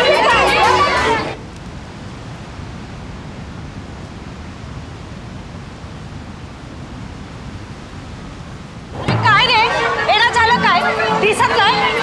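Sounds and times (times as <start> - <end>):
steady rushing noise: 0.0 - 12.0.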